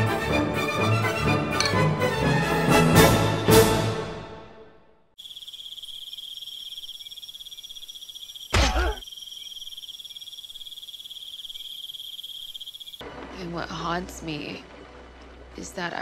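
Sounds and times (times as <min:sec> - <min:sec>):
crickets chirping: 0:05.2 - 0:13.0.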